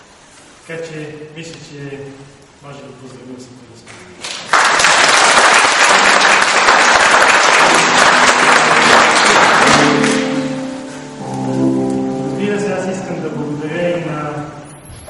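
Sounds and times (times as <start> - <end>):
audience applauding: 4.2 - 10.8
music with held notes: 7.4 - 14.7.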